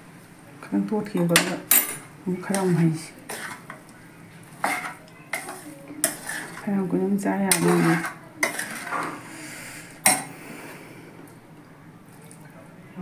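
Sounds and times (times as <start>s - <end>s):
metal spoon scraping a wok: 2.4s - 3.8s, 4.4s - 10.3s.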